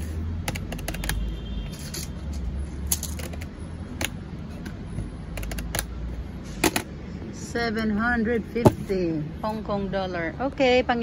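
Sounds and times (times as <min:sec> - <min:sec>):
packets handled on glass counter: 0:00.0 - 0:05.9.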